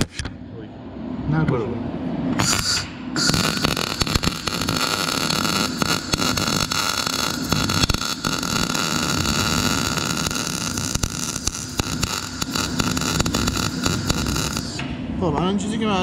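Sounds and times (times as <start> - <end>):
welding arc crackling hiss: 2.4 - 14.9.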